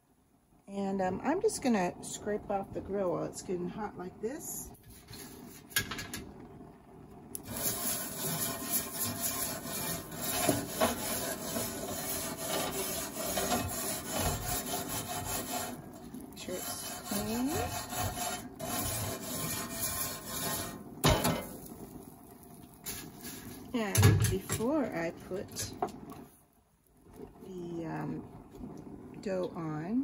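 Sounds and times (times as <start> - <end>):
wire brush scraping grill grates: 7.4 - 21.7, 22.8 - 23.6.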